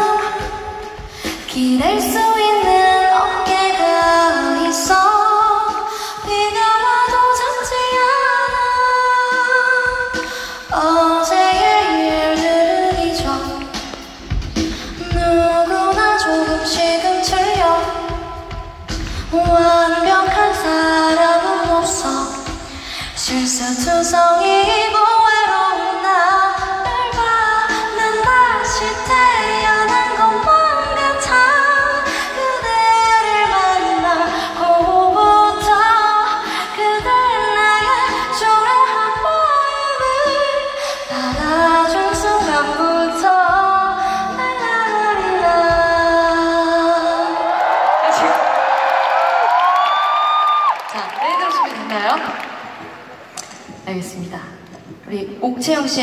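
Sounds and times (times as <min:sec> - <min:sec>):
woman singing a cappella: 0:00.0 - 0:13.8, 0:14.9 - 0:47.5.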